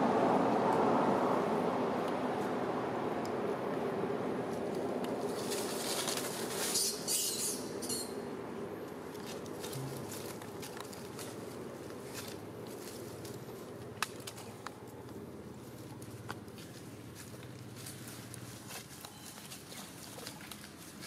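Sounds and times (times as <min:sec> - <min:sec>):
steady background noise: 0:00.0 - 0:21.0
dry leaves crackling and rustling: 0:04.5 - 0:08.0, 0:09.0 - 0:21.0.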